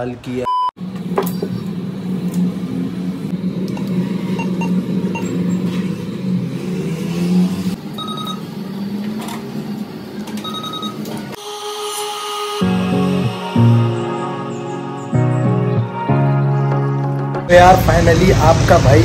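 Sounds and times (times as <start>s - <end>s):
street noise: 0.0s - 11.4s, 17.1s - 19.0s
steady low hum: 0.8s - 10.9s
cash machine beeping: 3.7s - 5.6s, 7.8s - 8.6s, 10.2s - 11.4s.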